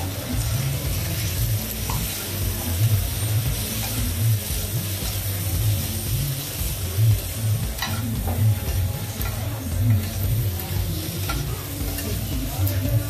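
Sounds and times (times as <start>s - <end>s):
meat sizzling on a griddle: 0.0s - 13.0s
metal spatula scraping and clinking: 7.8s - 10.2s.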